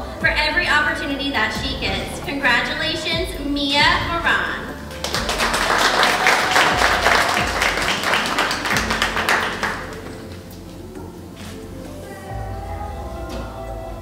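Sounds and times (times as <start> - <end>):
audience applauding: 4.9 - 10.2.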